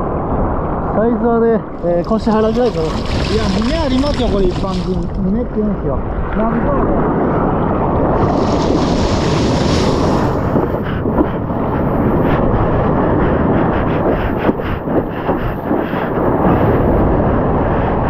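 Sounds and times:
wind buffeting camera: 0:00.0 - 0:18.0
churning sea water: 0:01.7 - 0:18.0
hand splashing through water: 0:02.0 - 0:05.2.

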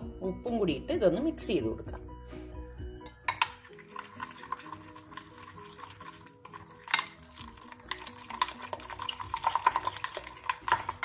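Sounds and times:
soft background music: 0:00.0 - 0:11.0
spoon clinking against glass: 0:03.0 - 0:04.8, 0:06.6 - 0:11.0
spoon scraping glass bowl: 0:03.1 - 0:11.0.

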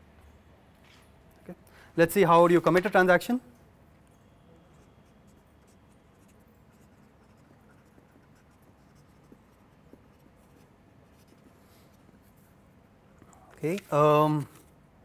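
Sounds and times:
marker pen scratching on paper: 0:04.6 - 0:12.6.

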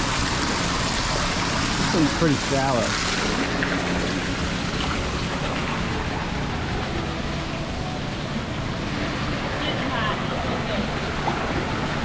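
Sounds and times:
waterfall splashing into pool: 0:00.0 - 0:07.1.

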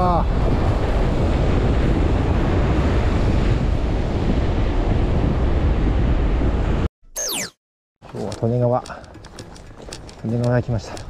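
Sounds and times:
wind buffeting microphone: 0:00.0 - 0:06.9.

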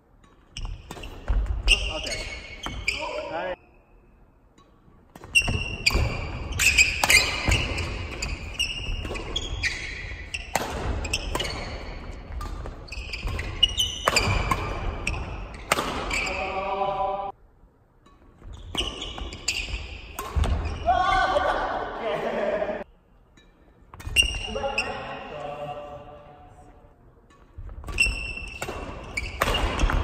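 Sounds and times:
shoes squeaking on wooden floor: 0:05.3 - 0:16.4, 0:18.4 - 0:20.8.

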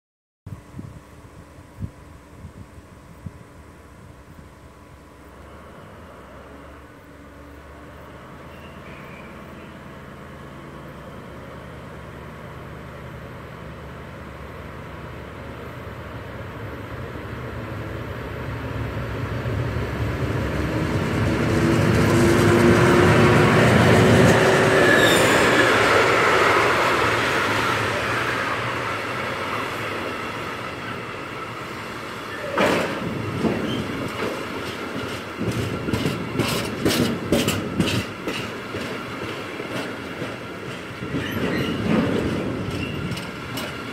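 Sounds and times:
diesel locomotive engine passing: 0:01.2 - 0:43.9
wheels clacking over rail joints: 0:21.2 - 0:43.9.

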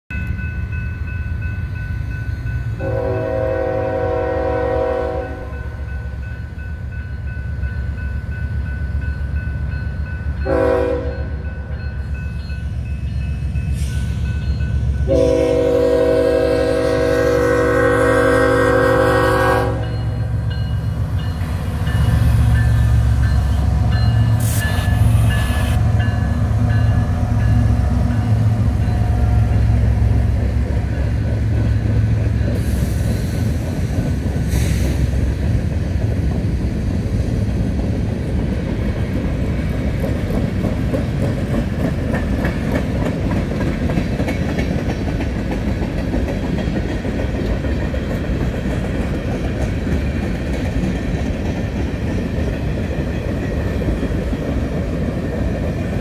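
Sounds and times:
train rumbling: 0:00.1 - 0:56.0
locomotive air horn blasts: 0:02.8 - 0:05.6, 0:10.4 - 0:11.4, 0:15.1 - 0:20.2.

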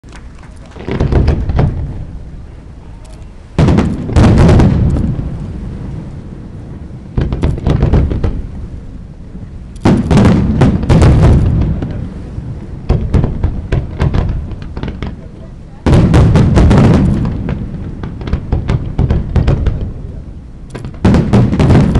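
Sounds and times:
fireworks bangs and crackles: 0:00.0 - 0:21.9.

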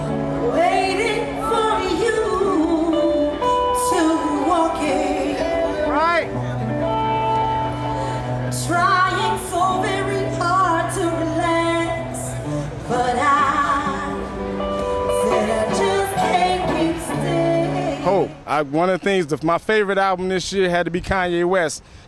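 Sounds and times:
woman singing into a microphone: 0:00.0 - 0:05.9, 0:07.7 - 0:18.1.

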